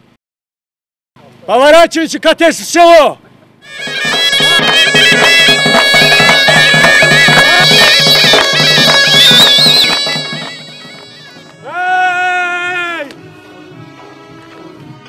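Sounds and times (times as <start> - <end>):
held drone: 3.6 - 11.6
shrill reedy zurna melody: 3.6 - 15.0
fast drum beat: 3.7 - 11.6.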